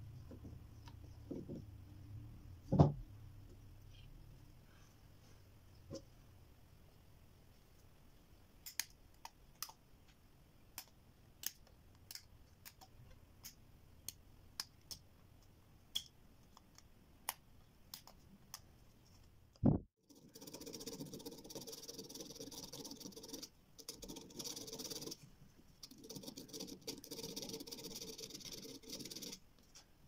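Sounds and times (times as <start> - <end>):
thump: 2.7 - 3.0
scratchy rubbing on board: 20.1 - 29.4.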